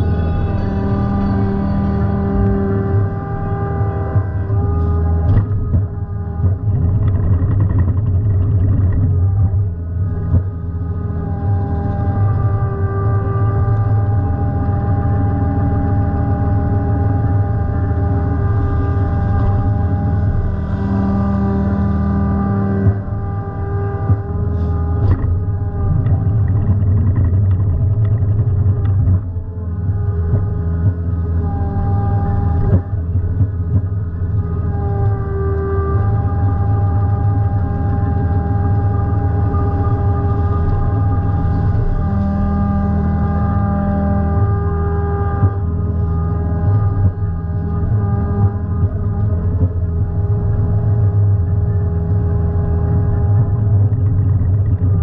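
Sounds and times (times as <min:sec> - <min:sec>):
diesel excavator engine running: 0:00.0 - 0:55.0.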